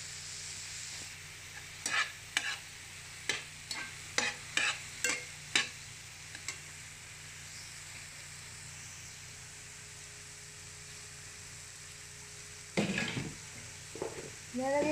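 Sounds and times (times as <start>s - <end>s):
food sizzling in oil: 0.0s - 14.9s
metal spatula scraping frying pan: 1.8s - 2.7s, 3.3s - 5.8s, 12.8s - 13.2s.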